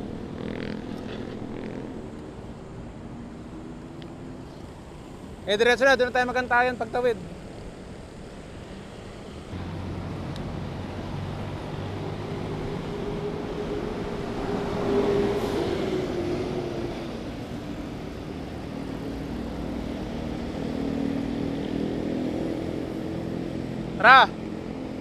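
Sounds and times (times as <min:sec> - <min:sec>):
vehicle passing close: 0:00.0 - 0:05.2, 0:08.7 - 0:25.0
city road traffic: 0:00.0 - 0:25.0.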